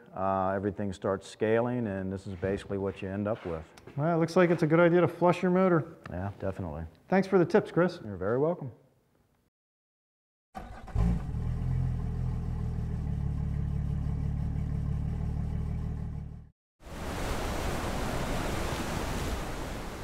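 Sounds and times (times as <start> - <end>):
engine starting thump: 10.6 - 12.6
engine running steadily: 10.9 - 16.4.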